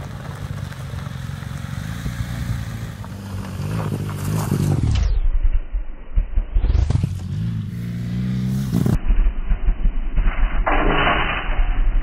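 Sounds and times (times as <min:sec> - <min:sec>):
gravel spraying from tyre: 0:00.0 - 0:04.9
motorcycle engine revving: 0:00.0 - 0:05.2, 0:06.1 - 0:09.2.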